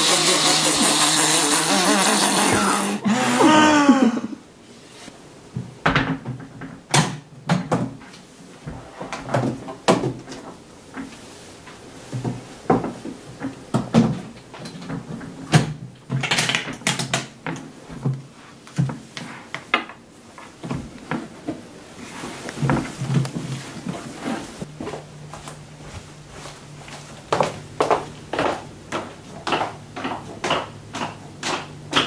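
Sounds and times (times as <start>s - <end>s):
man straining with hissing: 0.0s - 4.4s.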